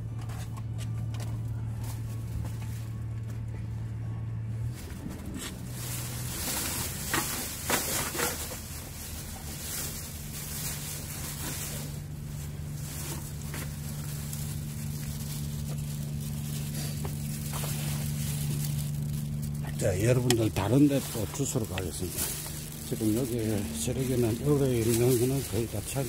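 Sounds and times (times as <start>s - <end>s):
low engine drone: 0.0s - 26.0s
plastic bag rustling: 4.6s - 26.0s.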